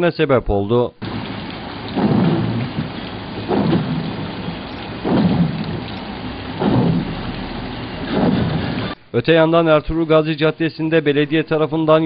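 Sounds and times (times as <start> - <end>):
heavy rain on a flooded street: 1.0 - 9.0.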